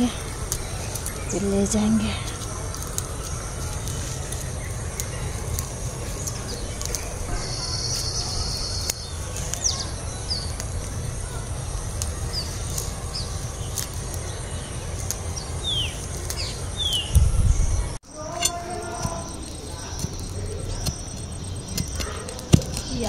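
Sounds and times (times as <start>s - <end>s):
birds chirping: 0.0s - 23.0s
leafy greens snapping: 0.0s - 23.0s
low rumble: 8.3s - 18.2s.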